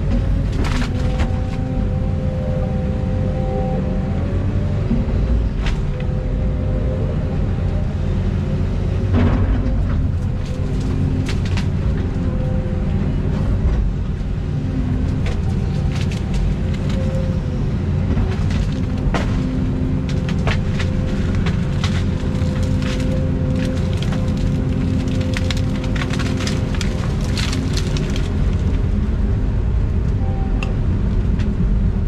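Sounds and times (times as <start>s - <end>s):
excavator diesel engine running: 0.0s - 32.0s
hydraulics whining: 0.0s - 32.0s
sharp cracks and knocks: 0.1s - 1.6s, 9.1s - 12.0s, 18.1s - 28.8s.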